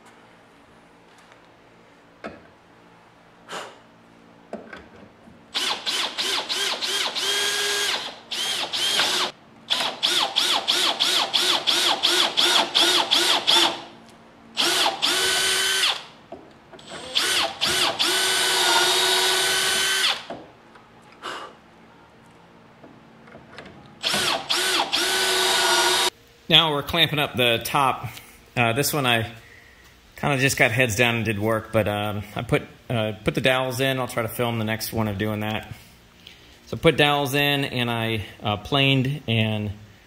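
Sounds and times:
cordless drill whining: 5.6 - 13.8, 14.6 - 16.1, 16.8 - 20.3, 24.0 - 26.1.

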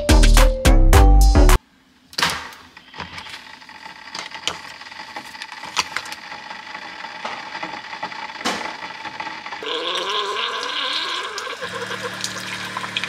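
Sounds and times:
coffee maker humming: 2.9 - 13.0.

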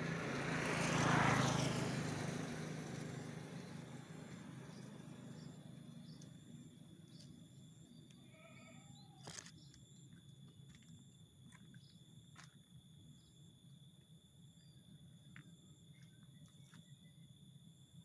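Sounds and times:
high-pitched insect trill: 0.6 - 13.7.

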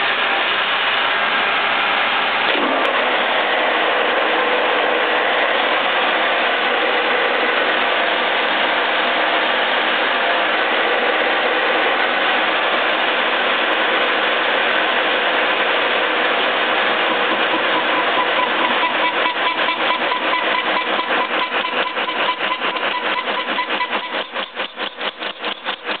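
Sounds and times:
boring mill running with gear whine: 0.0 - 26.0
regular machine pulsing: 15.9 - 26.0.

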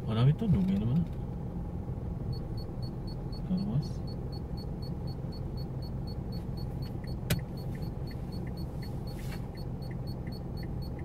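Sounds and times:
car engine idling: 0.0 - 11.0
electronic ticking: 2.3 - 11.0
sharp click: 7.3 - 7.5.

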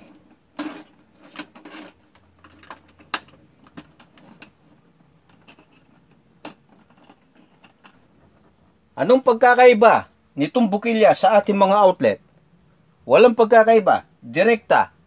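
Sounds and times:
wires rustling: 0.0 - 9.0.

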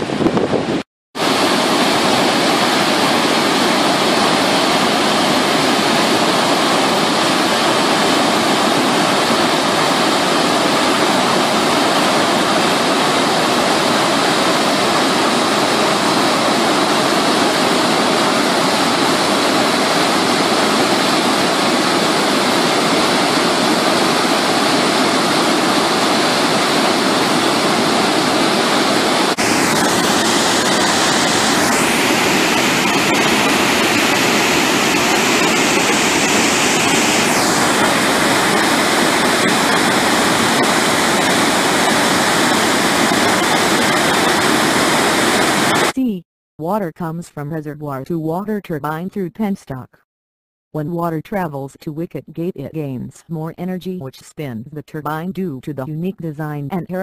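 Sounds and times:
water rushing through spillway: 1.2 - 46.0.

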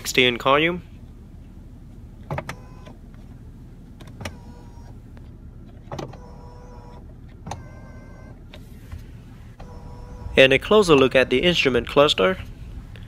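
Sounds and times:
electric motor whine: 4.2 - 4.9, 6.2 - 7.0, 9.6 - 10.4.

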